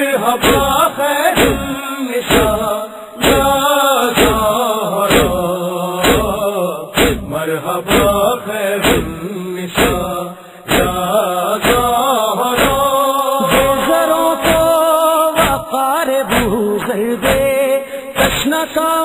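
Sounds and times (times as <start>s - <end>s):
person chanting a lament: 0.0s - 19.0s
steady drum beat: 0.4s - 0.7s, 1.4s - 1.7s, 2.3s - 3.6s, 4.2s - 5.4s, 6.0s - 6.4s, 7.0s - 7.3s, 7.9s - 8.2s, 8.8s - 9.2s, 9.8s - 10.1s, 10.7s - 11.0s, 11.6s - 12.0s, 12.6s - 12.8s, 13.5s - 13.8s, 14.4s - 14.8s, 15.4s - 15.7s, 16.3s - 16.6s, 17.2s - 17.6s, 18.2s - 18.5s.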